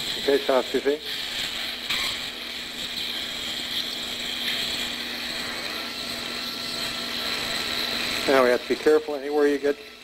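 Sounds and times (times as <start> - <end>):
surgical drill grinding bone: 0.0 - 10.0.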